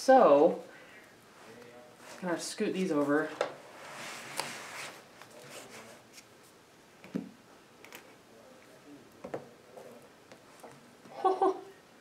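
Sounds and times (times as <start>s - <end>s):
rustle of book covers: 3.0s - 6.6s.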